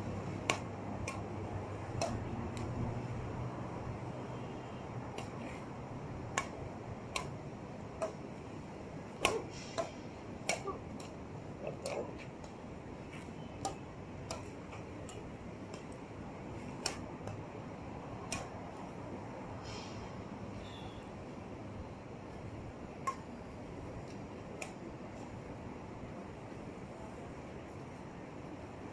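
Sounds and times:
low background noise: 0:00.0 - 0:28.9
rackets striking shuttlecock: 0:00.2 - 0:04.1, 0:05.1 - 0:05.6, 0:06.3 - 0:17.6, 0:18.2 - 0:18.9, 0:23.0 - 0:23.3.

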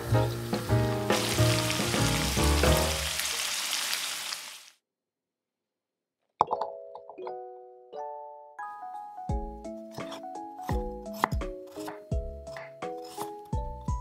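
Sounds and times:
shrimp sizzling in oil: 0:00.0 - 0:04.8.

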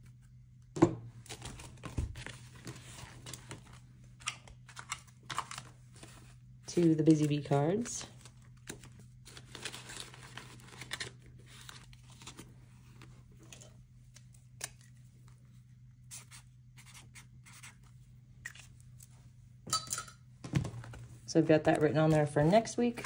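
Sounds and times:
paper and plastic rustling: 0:01.3 - 0:03.8, 0:04.6 - 0:13.7.

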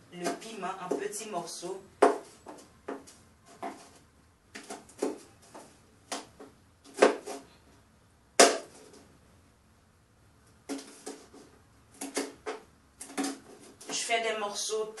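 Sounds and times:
knife chopping on board: 0:02.0 - 0:02.3, 0:06.9 - 0:07.4.

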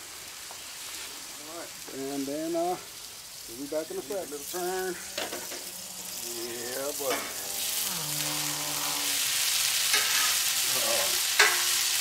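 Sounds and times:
food sizzling on a griddle: 0:00.0 - 0:12.0
metal spatula scraping griddle: 0:04.3 - 0:12.0
spatula clacking on griddle: 0:07.1 - 0:07.6, 0:09.8 - 0:12.0.

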